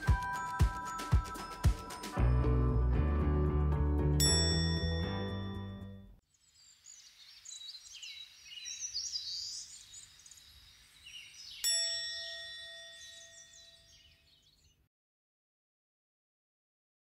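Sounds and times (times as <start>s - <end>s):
bell-like chime ringing: 0.0s - 2.9s, 4.2s - 6.1s, 11.6s - 13.9s
birds chirping: 6.3s - 14.8s.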